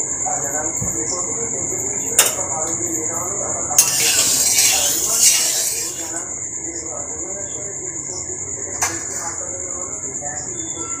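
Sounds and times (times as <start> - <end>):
high insect trill: 0.0 - 11.0
spatula swishing oil in a wok: 3.8 - 6.3.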